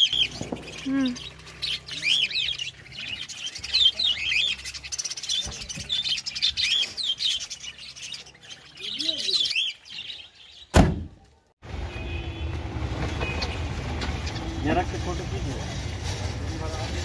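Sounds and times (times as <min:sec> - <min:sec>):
cage birds chirping: 0:00.0 - 0:17.0
van door slamming: 0:10.7 - 0:11.2.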